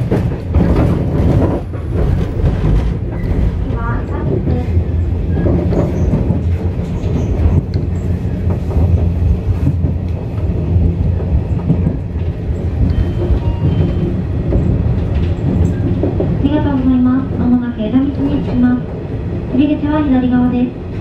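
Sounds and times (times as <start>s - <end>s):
train wheels rumbling on rail: 0.0s - 21.0s.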